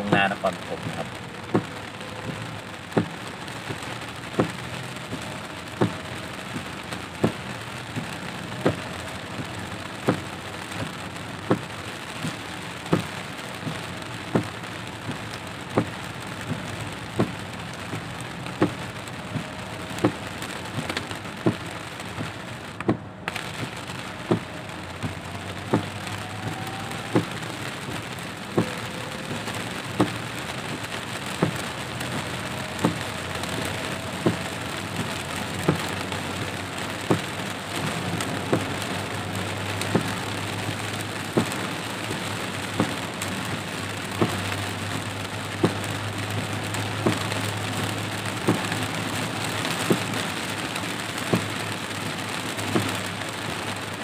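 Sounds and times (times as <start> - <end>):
heavy rain on car roof: 0.0 - 54.0
windshield wipers knocking: 0.0 - 54.0.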